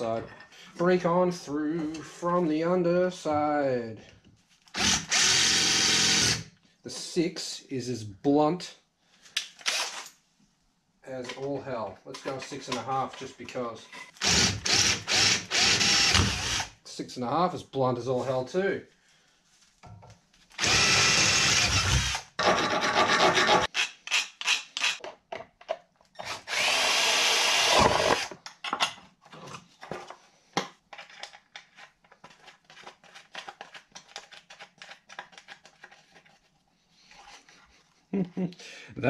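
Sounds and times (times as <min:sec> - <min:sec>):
cordless drill boring metal: 0:04.8 - 0:06.4, 0:09.7 - 0:10.0, 0:14.2 - 0:16.7, 0:20.6 - 0:25.0, 0:26.2 - 0:28.3.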